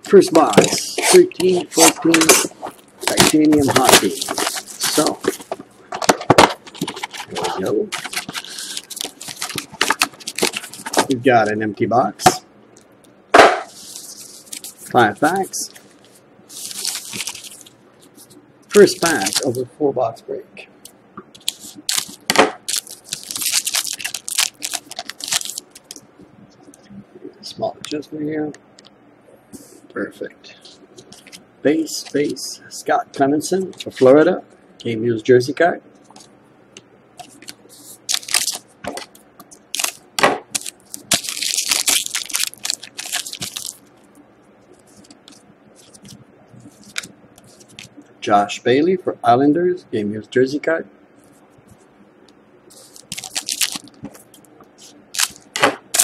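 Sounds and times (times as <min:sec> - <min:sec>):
foil wrapper crinkling: 0:00.4 - 0:11.2, 0:13.7 - 0:19.6, 0:21.4 - 0:26.0, 0:37.2 - 0:44.0, 0:44.8 - 0:48.0, 0:52.7 - 0:56.0.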